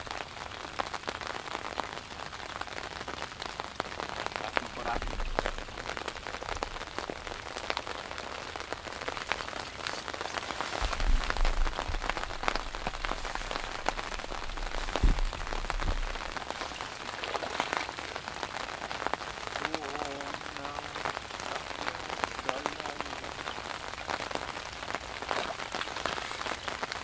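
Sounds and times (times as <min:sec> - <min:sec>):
rain pattering: 0:00.0 - 0:27.0
low thumps: 0:10.8 - 0:16.4.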